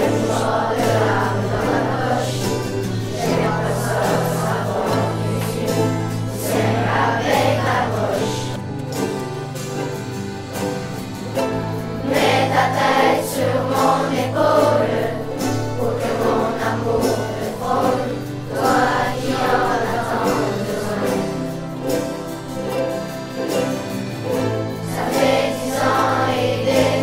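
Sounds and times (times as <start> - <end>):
children singing together: 0.0 - 9.2, 10.6 - 27.0
ukuleles strumming: 0.0 - 27.0.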